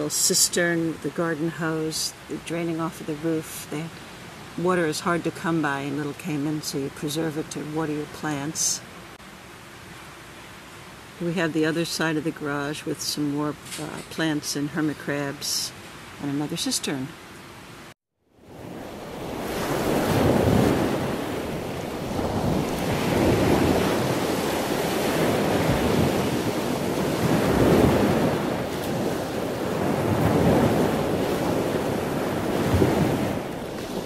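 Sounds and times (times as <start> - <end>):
sea surf washing in: 18.3 - 34.0
wind rumbling on microphone: 18.4 - 34.0.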